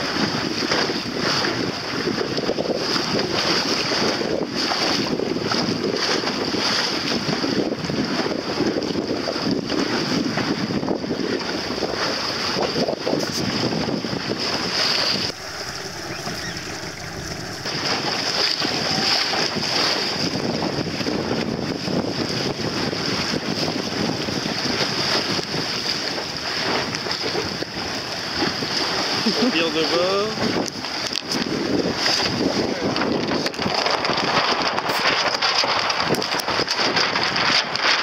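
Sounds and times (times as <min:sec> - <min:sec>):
water slapping along a hull: 0:00.0 - 0:38.0
wind buffeting the microphone: 0:00.0 - 0:38.0
steady high hiss: 0:15.2 - 0:19.3.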